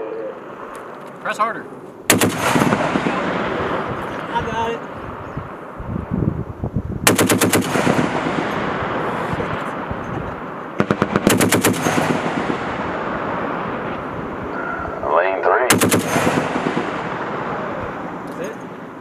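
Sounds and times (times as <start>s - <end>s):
gunfire rolling echo: 2.1s - 5.8s, 7.0s - 19.0s
heavy machine gun bursts: 10.8s - 12.5s, 15.7s - 16.9s.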